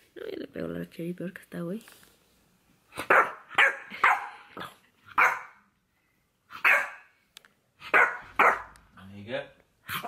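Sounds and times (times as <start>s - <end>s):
small dog barking: 3.0s - 5.6s, 6.5s - 7.1s, 7.8s - 8.7s.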